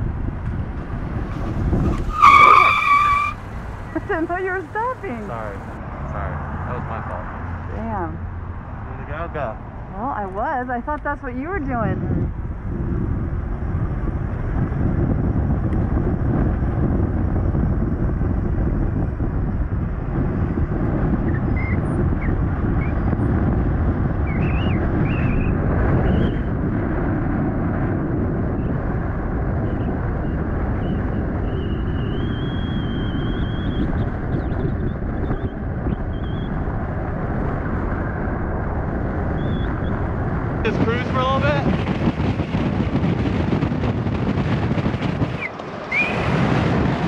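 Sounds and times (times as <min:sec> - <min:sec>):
traffic noise: 0:00.0 - 0:47.0
wind rushing over microphone: 0:00.0 - 0:47.0
faint high squeals: 0:02.0 - 0:03.4.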